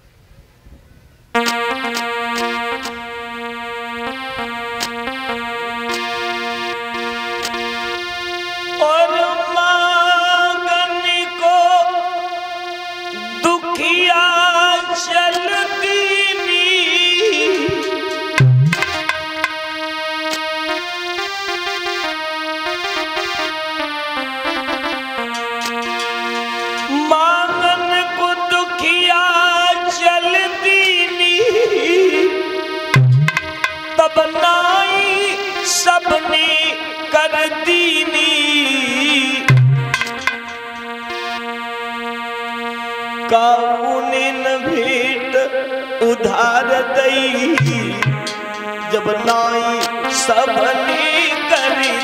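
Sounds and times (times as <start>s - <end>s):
electronic keyboard held notes: 0.9s - 52.0s
loud low thump: 18.4s - 19.5s, 33.0s - 33.8s, 39.5s - 40.5s
sharp knocks: 18.4s - 19.6s, 33.0s - 33.9s, 39.5s - 40.7s.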